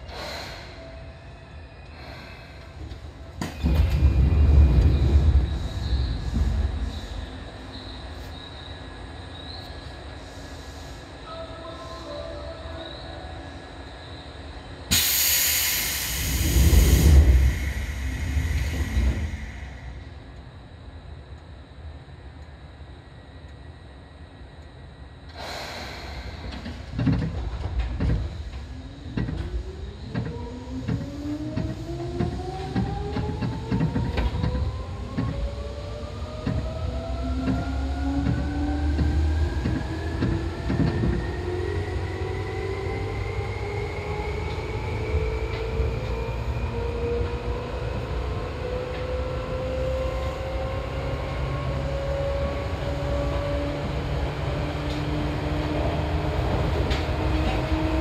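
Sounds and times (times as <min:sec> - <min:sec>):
train traction motor whine: 0:11.2 - 0:58.0
air hiss: 0:14.9 - 0:20.1, 0:25.3 - 0:27.0
train wheels clattering: 0:25.3 - 0:35.6, 0:36.3 - 0:41.6.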